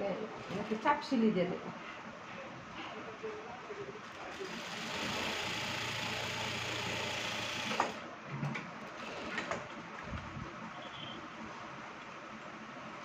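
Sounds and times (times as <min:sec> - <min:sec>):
sewing machine running: 0:00.4 - 0:01.0, 0:04.1 - 0:08.0, 0:08.8 - 0:09.6.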